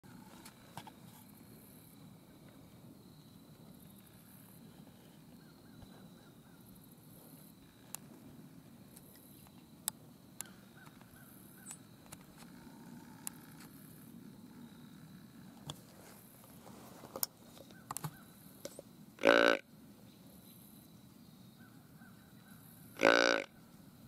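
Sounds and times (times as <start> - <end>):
distant bird calls: 10.4 - 15.5, 17.5 - 23.8.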